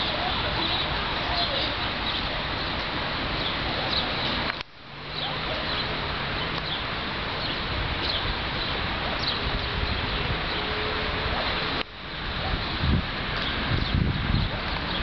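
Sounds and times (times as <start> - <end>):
birds chirping: 0.0 - 15.0
gusty wind on microphone: 6.9 - 15.0.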